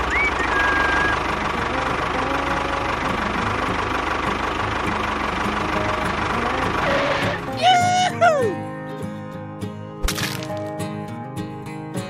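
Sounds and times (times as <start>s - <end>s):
high whistle: 0.0s - 1.2s
diesel engine idling: 0.0s - 8.6s.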